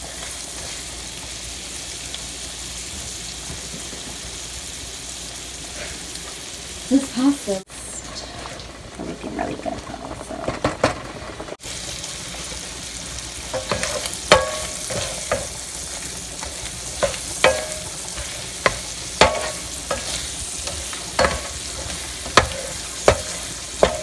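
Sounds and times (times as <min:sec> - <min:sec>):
shrimp sizzling in butter: 0:00.0 - 0:09.5, 0:10.7 - 0:24.0
wooden spoon scraping pan: 0:13.6 - 0:24.0.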